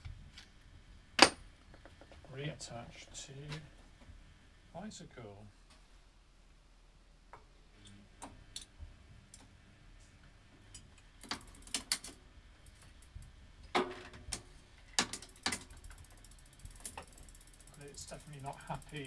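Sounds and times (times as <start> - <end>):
bicycle chain metallic clicks: 10.7 - 13.2, 14.3 - 19.0
freewheel ticking: 15.2 - 19.0.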